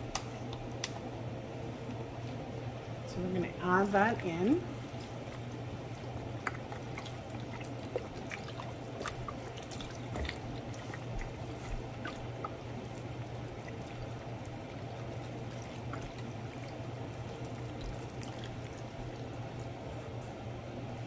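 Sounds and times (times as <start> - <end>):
broth pouring and splashing: 4.8 - 19.8
small drips and splatters: 4.9 - 20.3.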